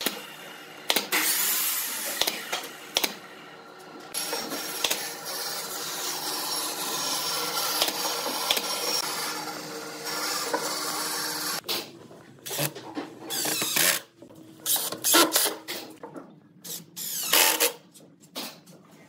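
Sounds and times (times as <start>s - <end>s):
steady mechanical noise: 0.0s - 11.8s.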